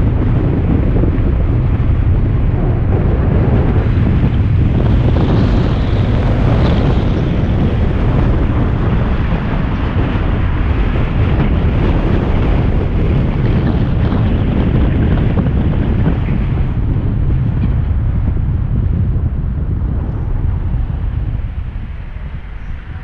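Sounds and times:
car rumbling on road: 0.0s - 23.0s
wind rushing on microphone: 0.0s - 23.0s.

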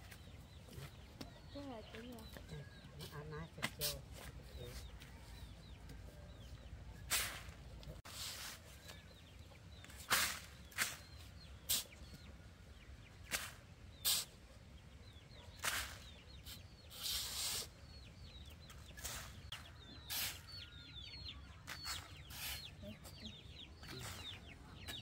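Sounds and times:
shovel scraping and tipping soil: 7.0s - 9.2s, 9.8s - 12.0s, 13.3s - 14.4s, 15.5s - 17.8s, 18.7s - 20.5s, 21.6s - 22.7s
poultry cheeping: 14.0s - 25.0s.

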